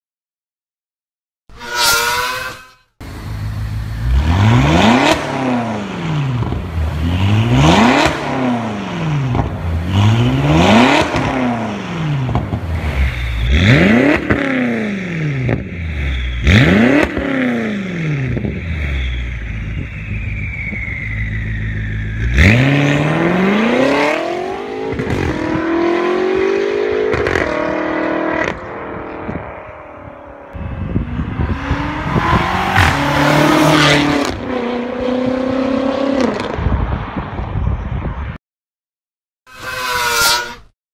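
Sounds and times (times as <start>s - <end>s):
car engine revving: 1.6s - 20.3s, 22.0s - 29.3s, 30.6s - 36.6s
car accelerating hard: 30.8s - 36.7s.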